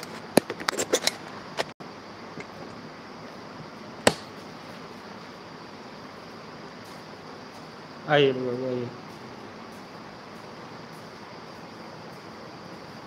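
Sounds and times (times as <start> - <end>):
steady hiss: 1.3 - 13.0
sharp knock: 4.0 - 4.3.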